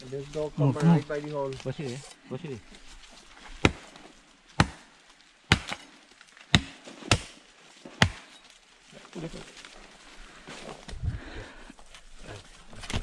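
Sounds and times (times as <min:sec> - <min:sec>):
tool chopping into roots and earth: 0:03.5 - 0:08.5.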